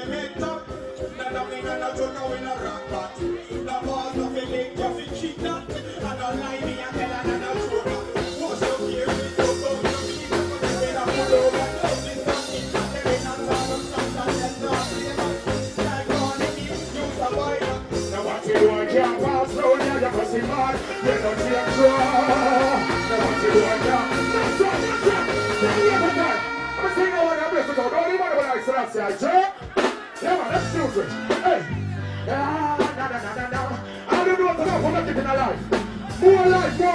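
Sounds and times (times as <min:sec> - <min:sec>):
person singing into a microphone: 0:00.0 - 0:36.9
reggae music with steady beat: 0:00.0 - 0:36.9
held instrument tones: 0:20.5 - 0:28.9.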